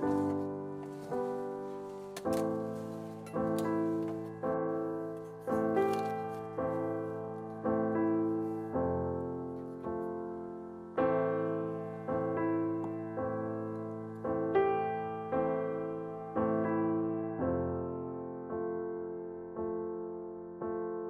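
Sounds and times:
slow piano chords: 0.0s - 21.0s.

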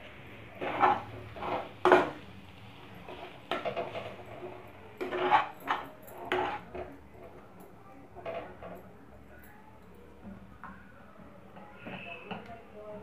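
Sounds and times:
metal spatula scraping a pan: 0.1s - 7.4s.

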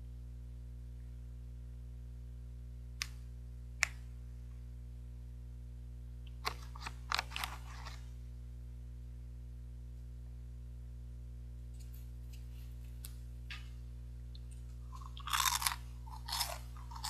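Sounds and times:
low hum: 0.0s - 17.0s
plastic snack bag crinkling: 6.4s - 8.1s, 14.4s - 17.0s.

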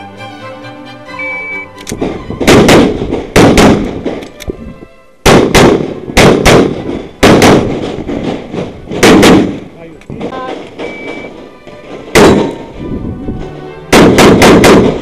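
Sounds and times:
pistol shots in quick pairs: 2.5s - 4.2s, 5.2s - 9.7s, 12.1s - 12.6s, 13.9s - 15.0s
electronic shot timer beep: 10.4s - 11.4s.

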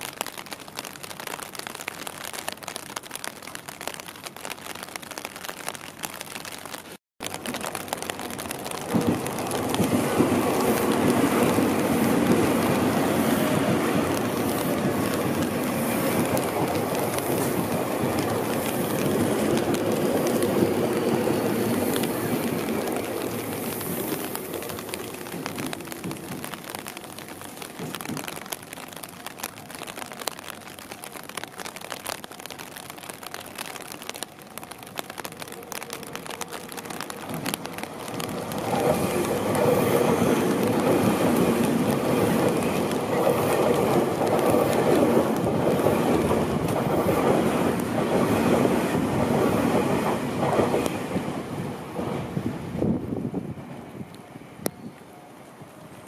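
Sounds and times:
rain hiss: 0.0s - 56.0s
wheels rumbling on rail: 7.2s - 56.0s
train passing: 7.3s - 28.6s, 34.1s - 56.0s.

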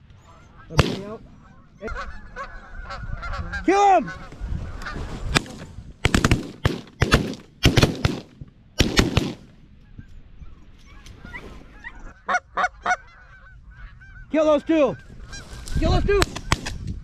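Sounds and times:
geese honking: 0.2s - 5.1s, 10.9s - 16.5s
shotgun blasts: 0.7s - 1.2s, 5.3s - 9.5s, 16.2s - 16.8s.

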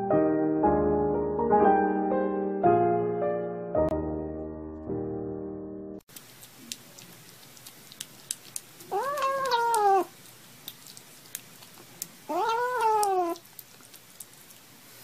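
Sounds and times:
wet chewing clicks: 6.1s - 15.0s
kitten meowing: 8.9s - 10.1s, 12.3s - 13.4s.

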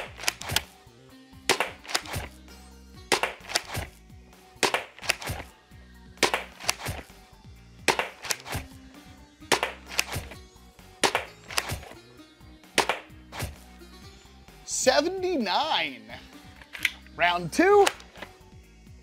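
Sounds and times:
foam dart blaster shots: 0.0s - 0.7s, 1.5s - 2.4s, 3.1s - 4.0s, 4.6s - 5.5s, 6.2s - 7.1s, 7.9s - 8.8s, 9.5s - 10.4s, 11.0s - 12.0s, 12.8s - 13.6s
background music: 0.0s - 19.0s.

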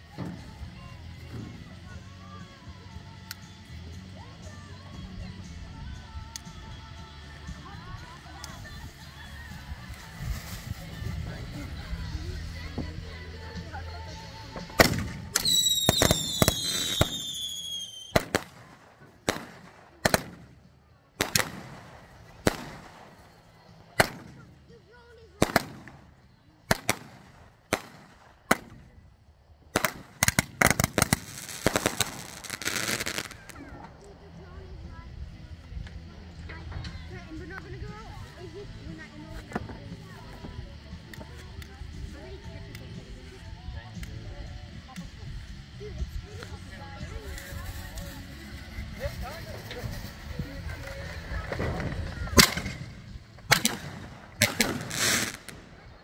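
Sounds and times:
firecrackers cracking: 7.4s - 34.8s, 46.4s - 56.0s.

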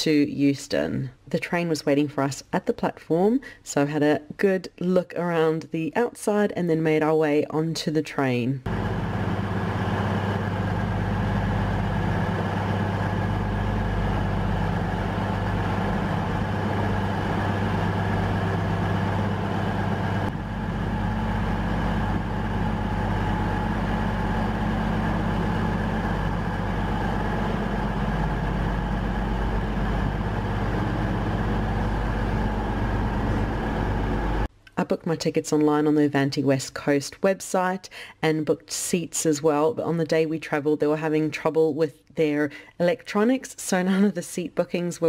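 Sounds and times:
diesel train engines idling: 8.7s - 34.5s.

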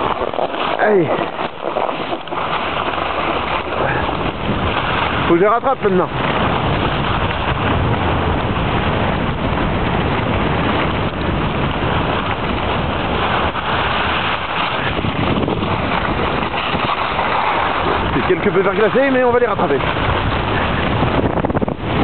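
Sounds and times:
snowboard scraping icy snow: 0.0s - 22.0s
wind rushing over microphone: 0.0s - 22.0s.

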